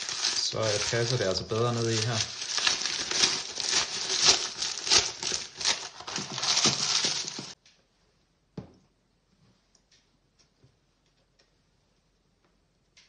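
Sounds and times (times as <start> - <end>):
baking paper crinkling: 0.0 - 7.6.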